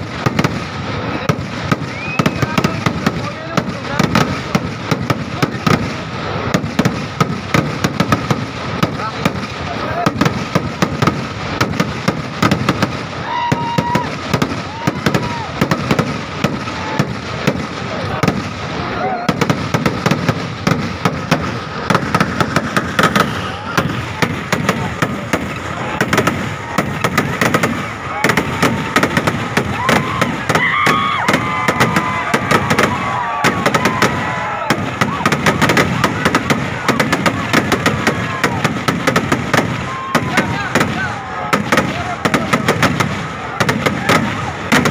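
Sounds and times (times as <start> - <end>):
fireworks bangs and cracks: 0.0 - 44.9
whistle-like firework tones: 0.8 - 3.3, 12.5 - 44.9.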